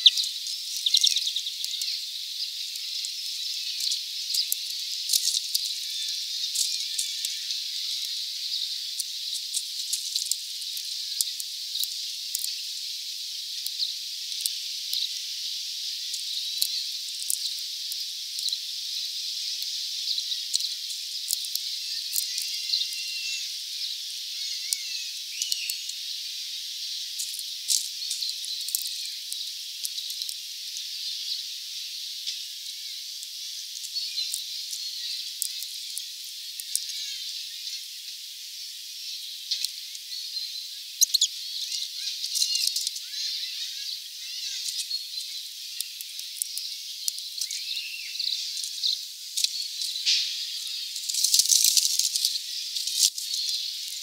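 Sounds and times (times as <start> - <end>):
faint bird chirps: 0.0 - 9.4, 18.4 - 27.2, 30.8 - 38.2, 39.0 - 51.0
steady high hiss: 0.0 - 54.0
bird pecking and cracking seeds: 3.8 - 5.7, 27.2 - 30.4, 51.0 - 54.0.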